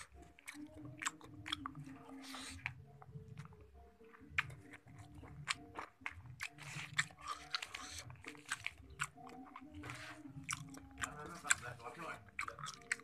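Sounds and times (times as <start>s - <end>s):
person chewing crunchy food: 0.0s - 13.0s.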